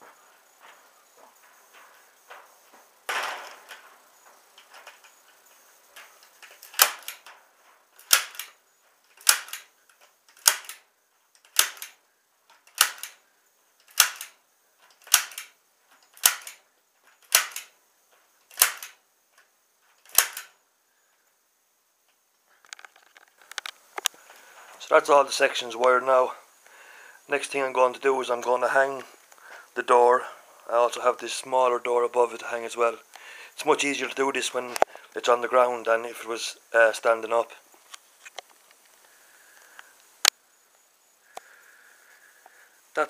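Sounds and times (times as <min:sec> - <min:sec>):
staple gun snapping: 0:06.5 - 0:07.2, 0:08.0 - 0:08.5, 0:09.2 - 0:09.7, 0:10.3 - 0:10.8, 0:11.4 - 0:12.0, 0:12.6 - 0:13.2, 0:13.8 - 0:14.3, 0:15.0 - 0:15.5, 0:16.2 - 0:16.6, 0:17.2 - 0:17.7, 0:18.5 - 0:19.0, 0:20.1 - 0:20.5.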